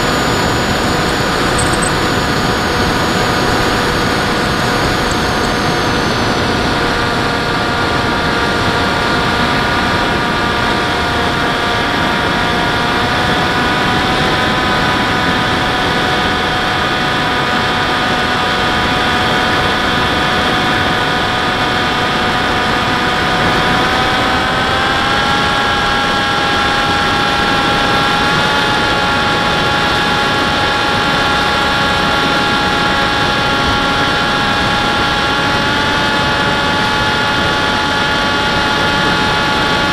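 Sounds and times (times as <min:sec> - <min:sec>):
propeller rushing noise: 0:00.0 - 0:16.4
model airplane motor whine: 0:00.0 - 0:39.9.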